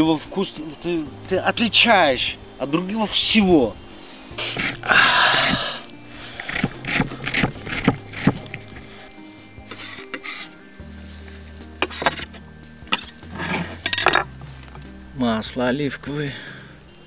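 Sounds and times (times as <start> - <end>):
background music: 0.0 - 17.0
ginger rasped on metal grater: 4.4 - 5.6, 6.3 - 9.0, 9.6 - 10.6
knife scraping wooden board: 4.4 - 5.7, 6.3 - 10.6, 11.3 - 14.3.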